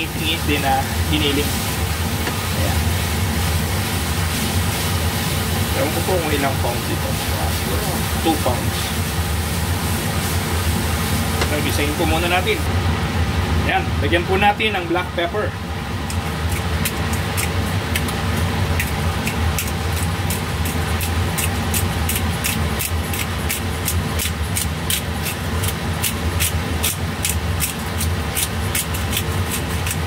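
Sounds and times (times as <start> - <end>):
steady low hum: 0.0 - 30.0
pepper grinder crunching: 16.0 - 30.0.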